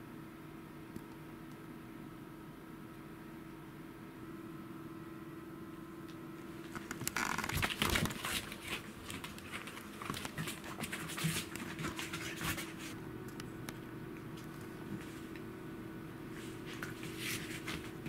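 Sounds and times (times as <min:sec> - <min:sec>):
steady low hum: 0:00.0 - 0:18.0
animals scuffling on a floor mat: 0:06.6 - 0:13.0, 0:14.3 - 0:15.4, 0:16.3 - 0:18.0.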